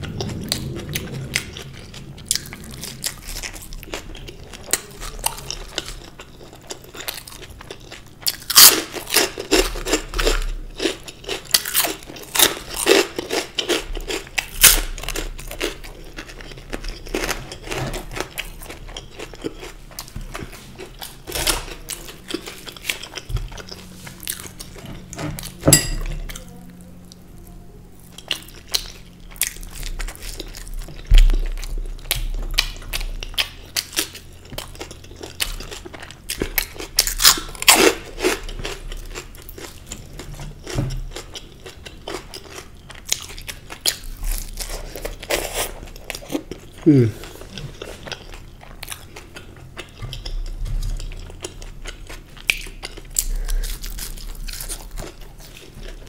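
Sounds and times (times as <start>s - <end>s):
chewing and lip smacks: 41.2s - 56.0s.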